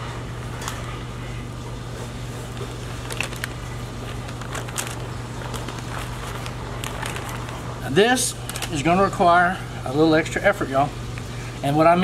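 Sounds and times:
low room hum: 0:00.0 - 0:12.0
gloved hands rustling on paper: 0:02.1 - 0:08.9.

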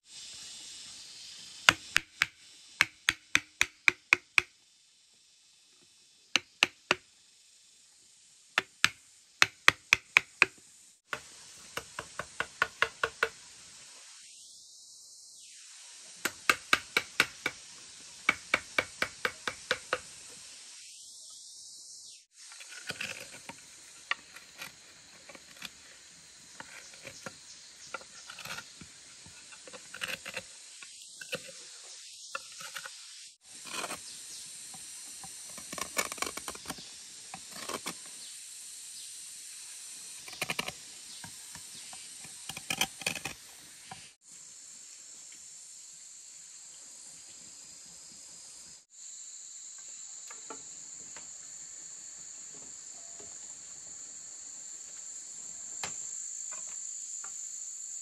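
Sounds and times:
background hiss: 0:00.0 - 0:58.0
sharp knocks on bamboo: 0:01.7 - 0:04.5, 0:06.4 - 0:07.0, 0:08.6 - 0:13.4, 0:16.2 - 0:17.6, 0:18.3 - 0:20.1
scraping: 0:22.5 - 0:30.5, 0:32.4 - 0:33.0, 0:33.6 - 0:34.0, 0:37.4 - 0:38.0.

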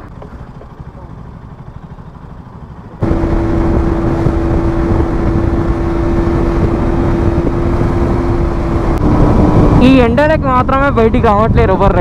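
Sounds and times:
motorcycle engine cruising: 0:00.0 - 0:12.0
wind noise: 0:03.0 - 0:12.0.

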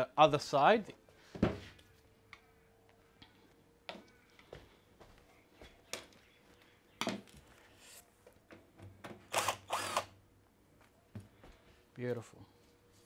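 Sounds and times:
cordless drill whirring: 0:09.3 - 0:10.2.

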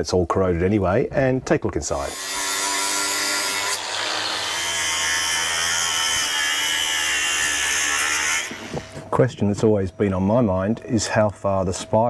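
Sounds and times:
angle grinder cutting metal: 0:02.0 - 0:09.0.

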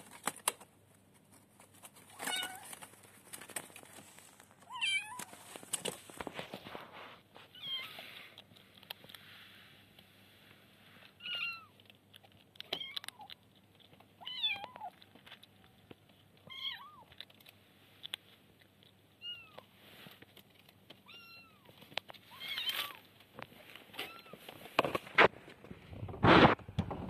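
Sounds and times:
kitten meowing: 0:16.4 - 0:17.1.

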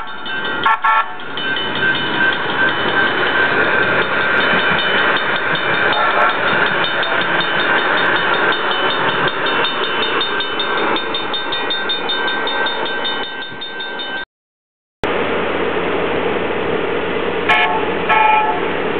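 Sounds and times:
level-crossing warning bell: 0:00.0 - 0:14.3
passing light-rail train: 0:00.0 - 0:14.3, 0:15.0 - 0:18.9.

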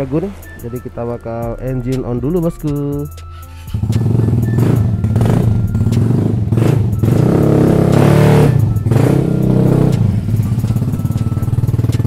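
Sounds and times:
scooter engine revving: 0:03.7 - 0:12.0.

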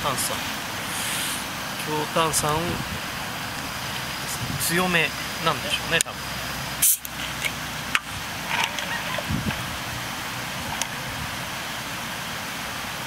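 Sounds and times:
steady background hiss: 0:00.0 - 0:13.0
soda water pouring and fizzing: 0:06.8 - 0:11.1.

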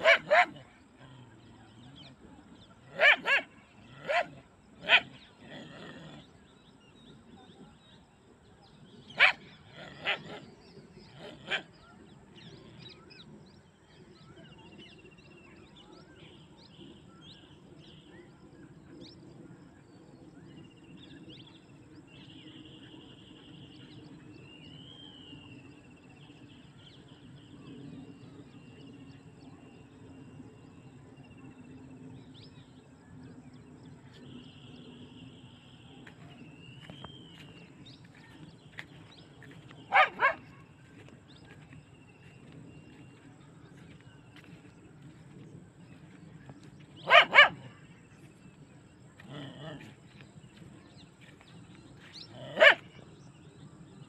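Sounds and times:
dog barking sharply: 0:47.1 - 0:47.6.

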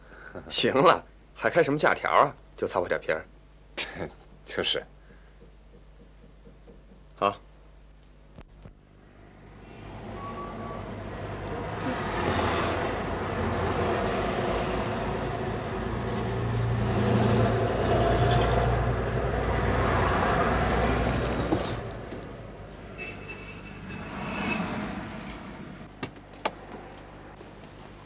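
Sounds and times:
car driving past: 0:09.6 - 0:22.0.

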